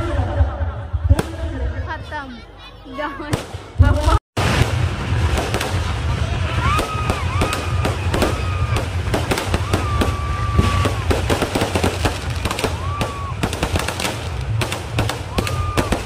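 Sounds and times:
fireworks cracking and popping: 3.3 - 16.0
low rumble: 3.7 - 16.0.

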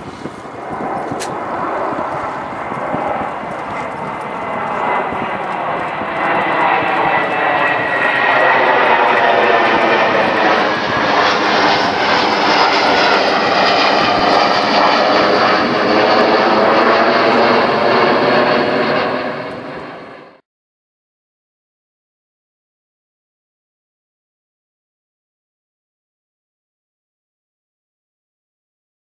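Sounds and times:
propeller aircraft engine running: 0.0 - 20.4.

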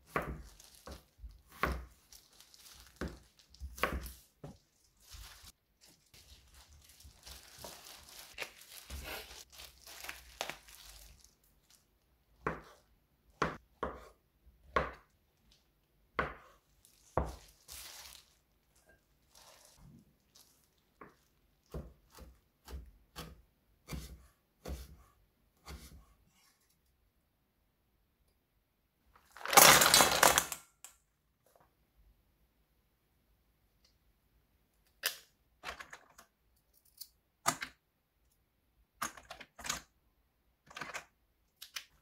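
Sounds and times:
rustling and crinkling: 0.0 - 12.1, 16.6 - 22.1.

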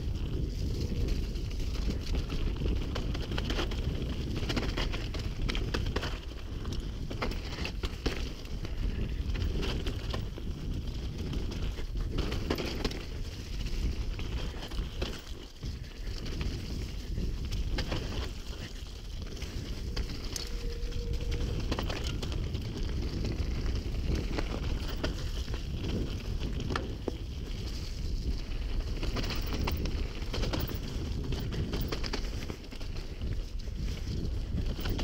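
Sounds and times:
bike clicking and rattling: 0.0 - 35.0
wind buffeting microphone: 0.0 - 35.0
tyres on dirt: 0.2 - 35.0.

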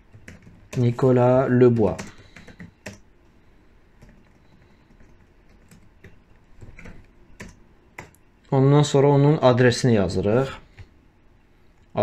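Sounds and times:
computer keyboard keystrokes: 0.1 - 1.0, 1.7 - 3.0, 4.0 - 8.2.

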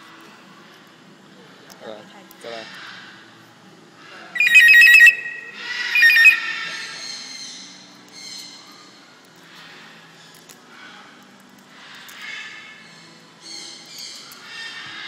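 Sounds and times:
parrot mimicking telephone ring: 4.4 - 6.6.

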